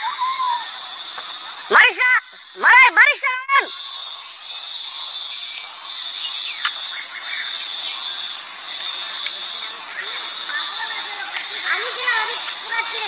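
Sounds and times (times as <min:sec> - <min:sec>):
insects buzzing: 0:00.0 - 0:13.0
hiss: 0:03.7 - 0:13.0.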